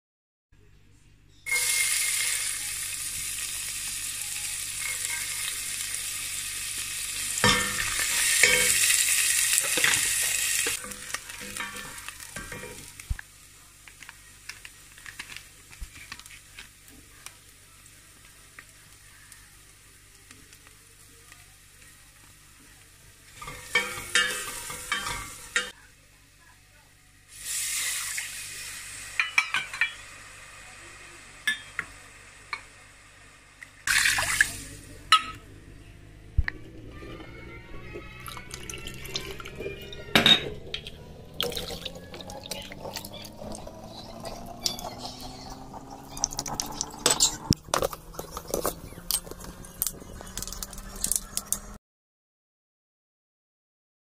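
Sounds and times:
sizzling in hot oil: 0:01.5 - 0:25.8, 0:27.2 - 0:35.3, 0:38.0 - 0:51.8
liquid pouring into pot: 0:33.9 - 0:34.7, 0:38.2 - 0:39.7, 0:40.7 - 0:47.0
wooden spoon scraping pot: 0:40.5 - 0:51.8.

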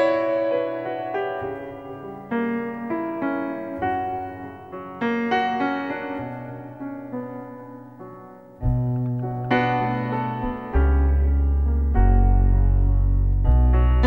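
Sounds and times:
piano chords: 0:00.0 - 0:14.0
deep bass note: 0:08.6 - 0:14.0.

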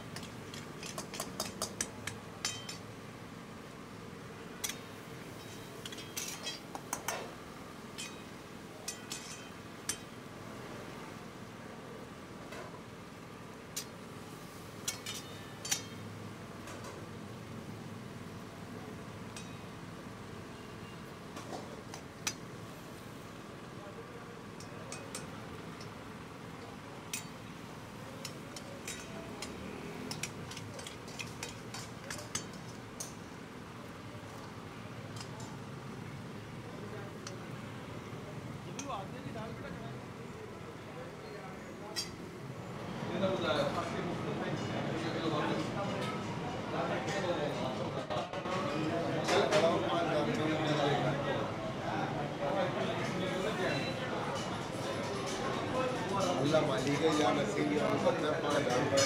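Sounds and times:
metal spatula clinking on pans: 0:00.1 - 0:03.0, 0:04.6 - 0:10.2, 0:14.8 - 0:16.1, 0:19.3 - 0:19.8, 0:24.5 - 0:27.6, 0:28.2 - 0:33.4, 0:34.5 - 0:35.7, 0:41.9 - 0:42.3, 0:53.0 - 0:59.0
metal spatula tapping a pan: 0:00.2 - 0:02.8.

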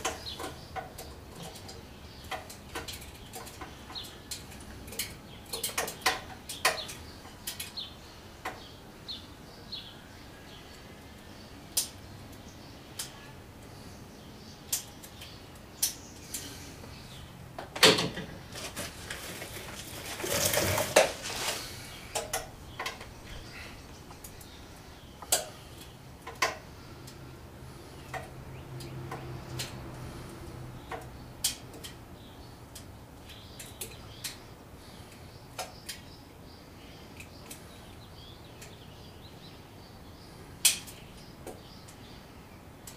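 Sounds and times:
rustling scrape: 0:18.5 - 0:22.0.

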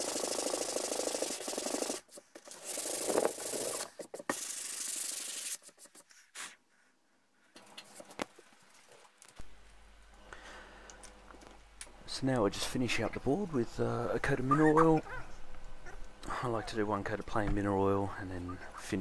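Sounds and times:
sandpaper rubbing on wood: 0:00.2 - 0:06.6.

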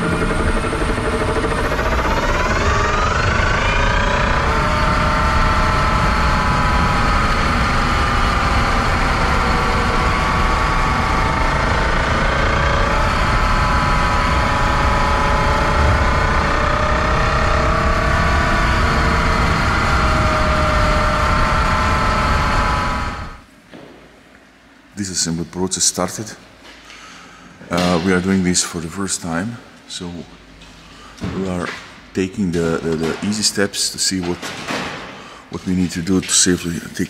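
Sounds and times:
electric motor whining: 0:00.0 - 0:23.5.

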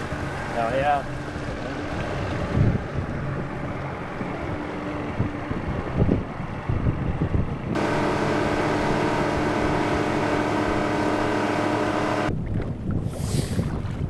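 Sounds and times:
wind buffeting microphone: 0:01.3 - 0:11.4, 0:12.3 - 0:14.0
boat motor running: 0:07.8 - 0:12.3.

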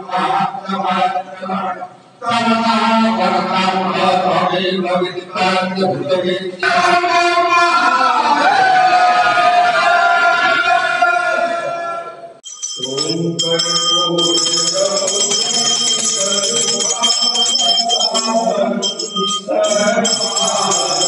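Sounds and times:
voices singing: 0:00.0 - 0:21.0
hand bells ringing: 0:12.4 - 0:21.0.

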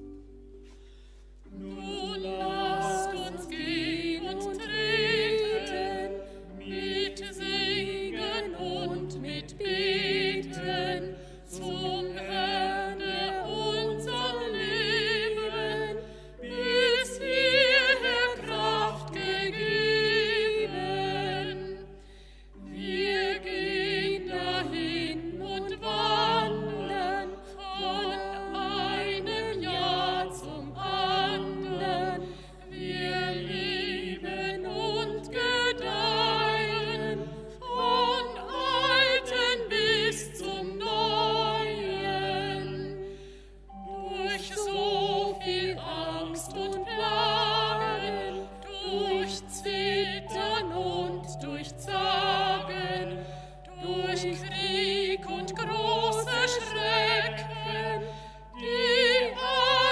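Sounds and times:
vocal ensemble singing in parts: 0:01.5 - 0:59.9.

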